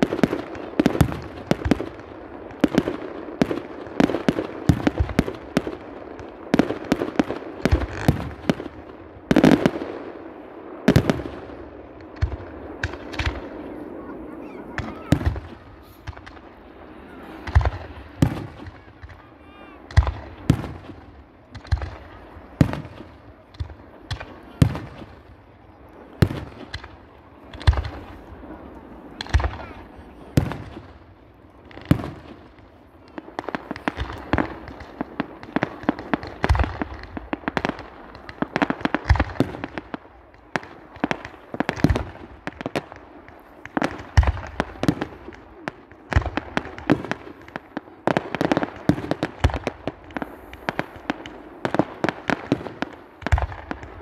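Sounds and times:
fireworks bangs: 0.0 - 54.0
fireworks crackling: 0.0 - 54.0.

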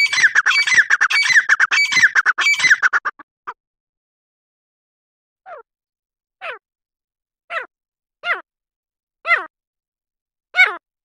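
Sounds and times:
bird calling falling notes: 0.0 - 3.2.

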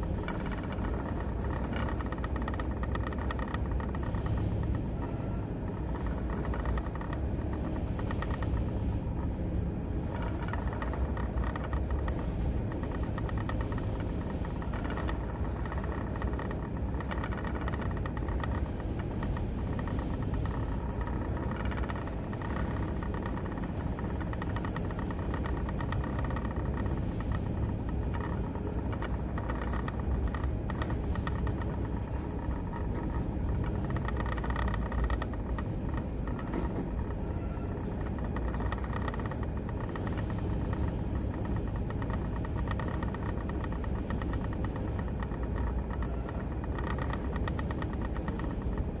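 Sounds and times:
ship engine rumble: 0.0 - 49.0.

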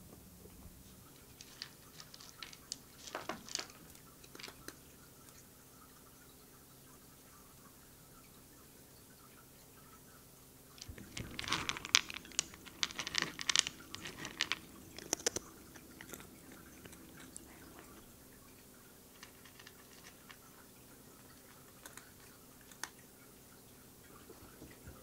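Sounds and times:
cat crunching dry kibble: 1.2 - 4.8, 10.8 - 18.2, 19.0 - 23.0.

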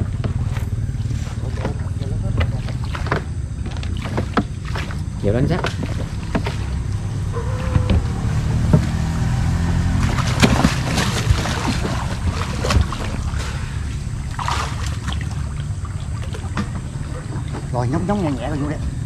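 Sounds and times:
boat engine rumble: 0.0 - 19.0
knocks against the hull: 1.5 - 6.8, 7.6 - 9.0, 10.0 - 13.5
rush of water: 9.8 - 17.8.

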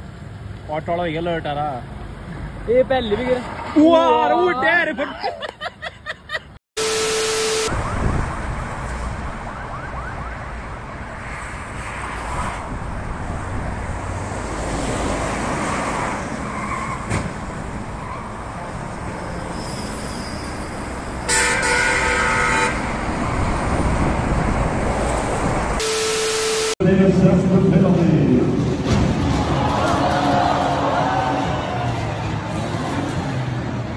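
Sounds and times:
highway traffic passing: 0.0 - 33.9
vehicle horn honking: 6.8 - 7.8, 21.3 - 22.9, 25.8 - 26.8.

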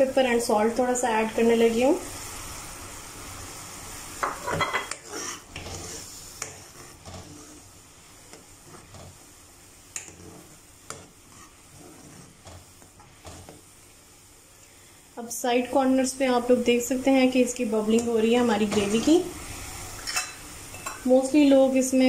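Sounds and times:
gravy sizzling and bubbling: 0.0 - 22.0.

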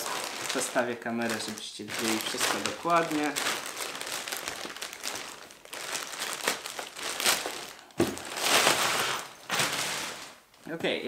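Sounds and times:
plastic bag crinkling: 0.0 - 10.7.

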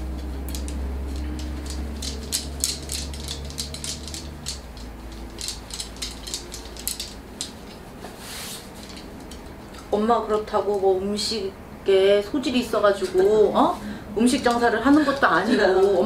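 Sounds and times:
small objects clicking on desk: 0.2 - 7.8
cloth rustling: 3.4 - 9.2.

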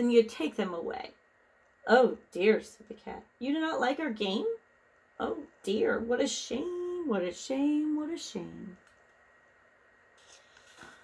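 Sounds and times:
faint soft rustles: 10.1 - 11.0.

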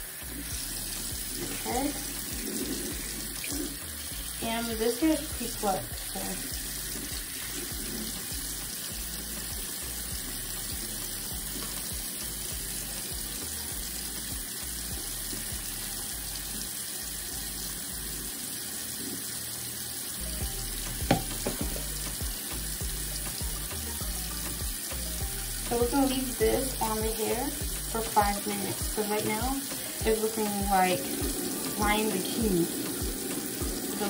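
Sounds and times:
faucet running into sink: 0.0 - 34.0
knocks and splashes: 21.0 - 22.0.

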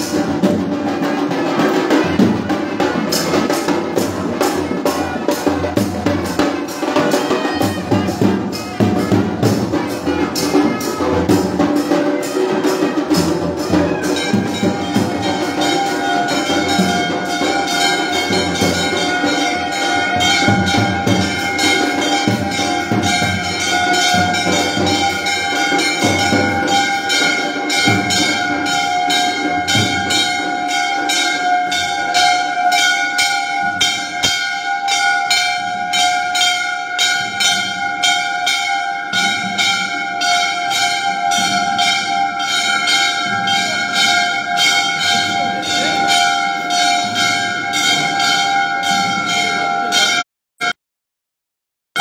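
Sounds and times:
low din: 0.0 - 50.8
temple bells ringing: 0.0 - 50.8.

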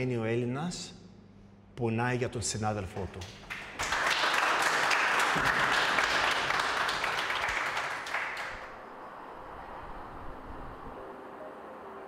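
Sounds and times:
people applauding: 3.0 - 8.8.

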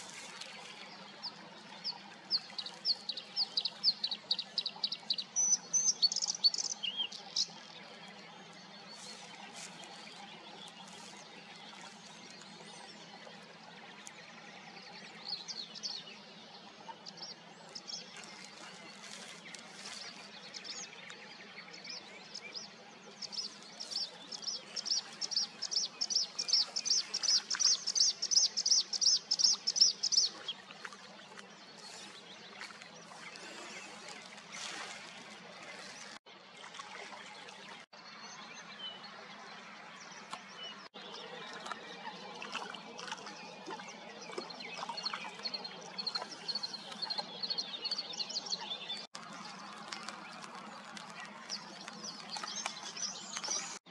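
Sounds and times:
bird singing: 0.1 - 30.7, 38.0 - 53.9.

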